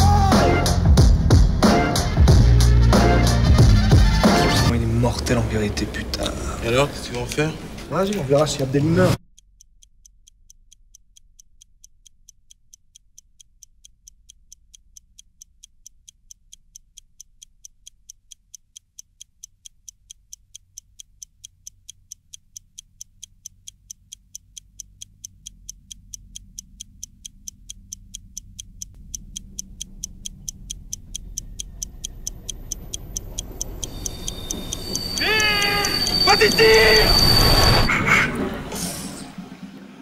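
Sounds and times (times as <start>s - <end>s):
low rumble: 0.0s - 7.8s, 25.0s - 35.0s
fast clock-like ticking: 0.0s - 39.2s.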